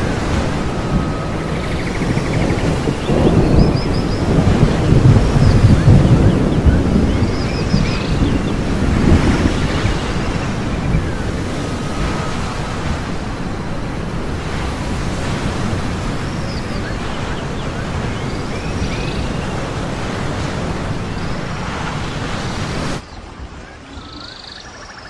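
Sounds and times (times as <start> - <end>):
faint high calls: 0.0 - 8.8
ocean surf rushing: 0.0 - 24.4.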